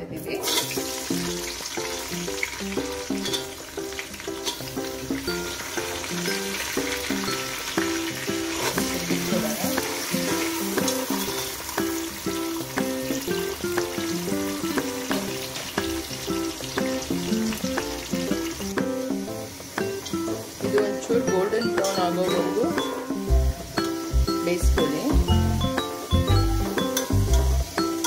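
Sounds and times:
background music: 0.0s - 28.0s
onions sizzling in hot oil: 0.2s - 28.0s.

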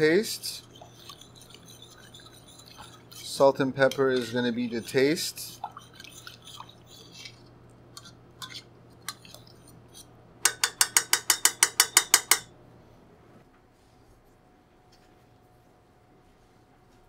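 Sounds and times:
spoon clinking against pan: 10.4s - 12.5s.

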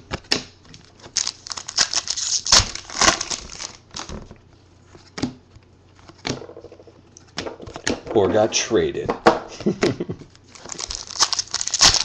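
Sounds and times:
wrapper crinkling and tearing: 0.8s - 4.3s, 10.3s - 12.0s.

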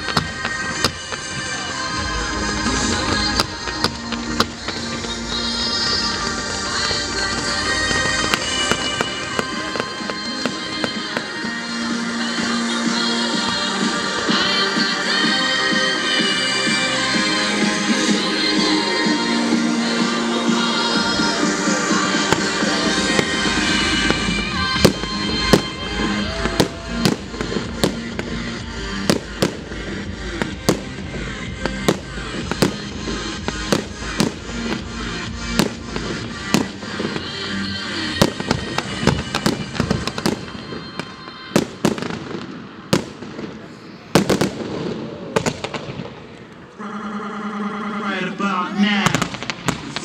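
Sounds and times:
fireworks bangs: 0.0s - 46.9s, 48.2s - 50.0s
music with deep bass beat: 19.9s - 36.7s.

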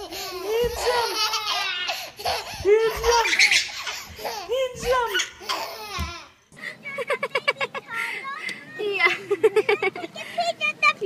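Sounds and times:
baby laughing: 0.0s - 6.3s.

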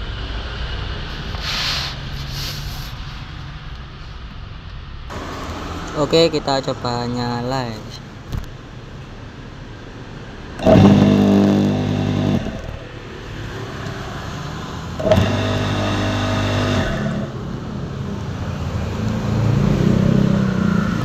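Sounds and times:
pressure washer motor humming: 10.6s - 13.0s, 15.0s - 17.4s.

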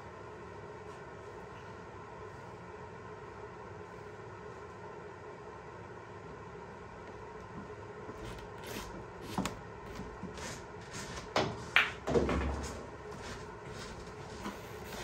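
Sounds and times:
pool balls clacking: 11.3s - 13.0s.

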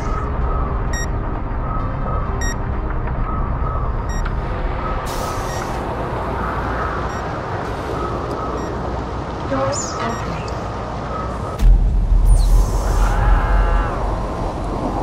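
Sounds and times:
electronic alert beep: 0.9s - 1.1s, 2.4s - 2.6s.

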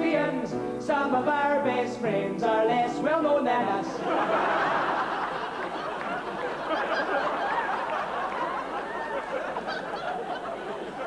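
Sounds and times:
audience laughing: 4.0s - 11.0s.

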